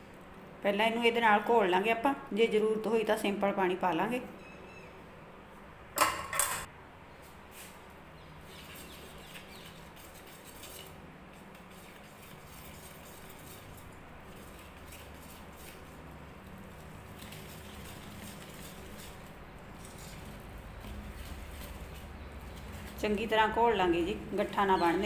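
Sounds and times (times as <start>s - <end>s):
whisk scraping in metal bowl: 8.5s - 25.0s.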